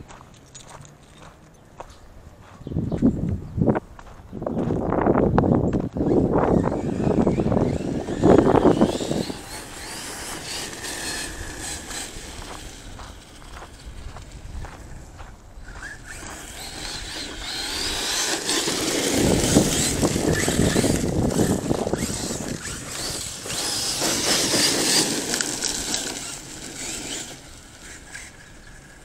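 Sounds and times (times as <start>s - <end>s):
tyre noise on dirt: 0.0s - 29.0s
electric motor whining: 6.0s - 15.0s, 15.6s - 29.0s.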